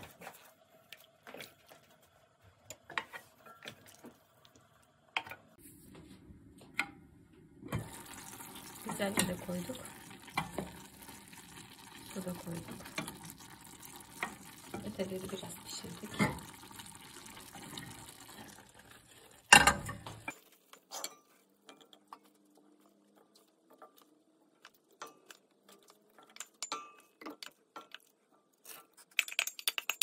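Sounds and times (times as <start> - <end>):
simmering pot hissing: 7.7 - 20.3.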